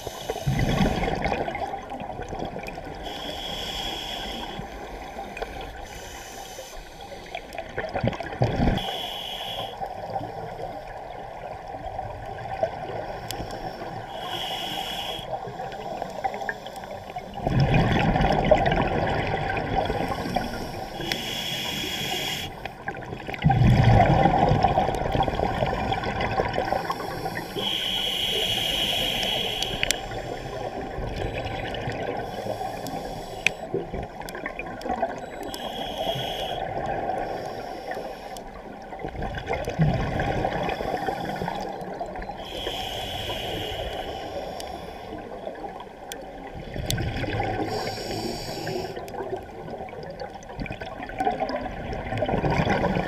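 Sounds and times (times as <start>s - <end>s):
hissing regulator inhalations: 0.0s - 1.2s, 2.9s - 7.6s, 8.8s - 10.2s, 13.2s - 17.4s, 20.0s - 22.8s, 26.6s - 33.8s, 35.2s - 38.7s, 40.6s - 45.4s, 47.6s - 49.2s
gurgling rushes of bubbles: 0.0s - 3.0s, 7.2s - 8.9s, 17.3s - 20.8s, 22.8s - 35.3s, 38.6s - 42.4s, 45.5s - 53.0s.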